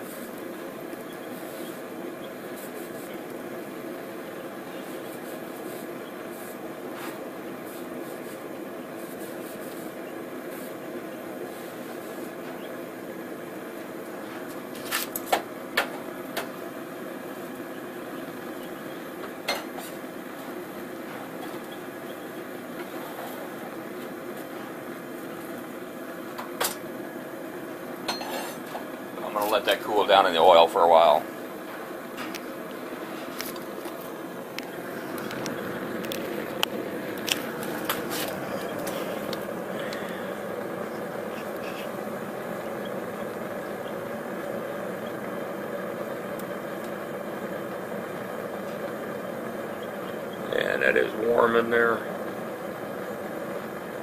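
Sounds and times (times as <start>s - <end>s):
forge burner flame rushing: 0.0s - 54.0s.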